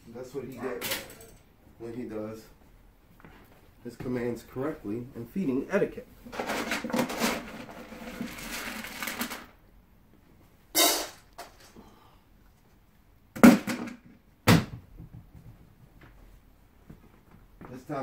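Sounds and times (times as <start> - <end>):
dry kibble rattling in bowl: 6.3 - 9.6.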